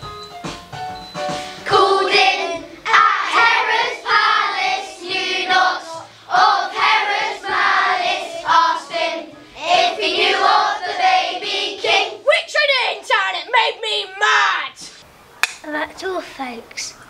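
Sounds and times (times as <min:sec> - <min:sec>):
children's choir singing: 0:01.6 - 0:12.2.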